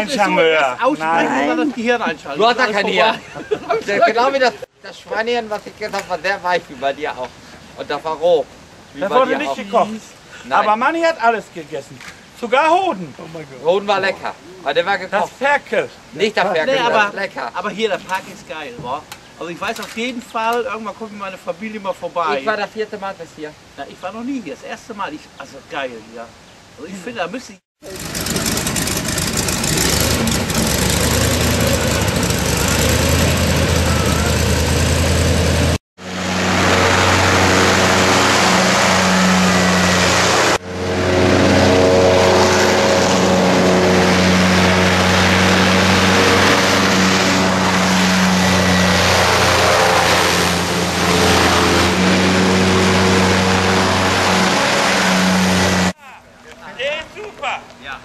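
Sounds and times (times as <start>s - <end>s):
airboat engine and propeller drone: 27.8s - 56.0s.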